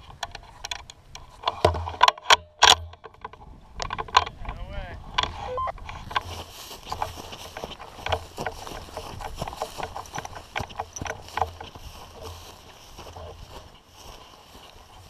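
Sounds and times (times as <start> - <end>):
footsteps through dry grass: 5.8 - 15.0.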